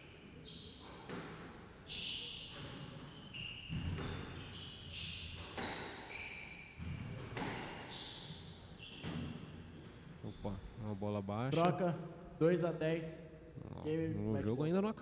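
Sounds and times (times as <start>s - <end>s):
shoes squeaking on wooden floor: 1.8s - 10.7s
squash ball hits: 6.8s - 7.9s.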